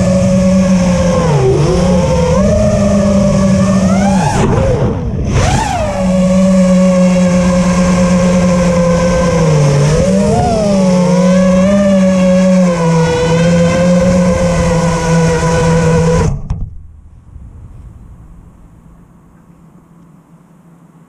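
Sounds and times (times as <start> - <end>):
drone motors whining: 0.0 - 16.6
wind rush: 17.0 - 19.3.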